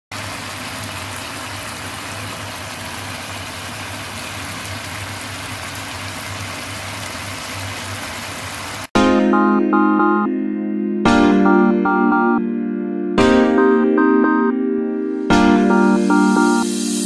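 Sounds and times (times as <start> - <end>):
pan simmering hiss: 0.1 - 8.9.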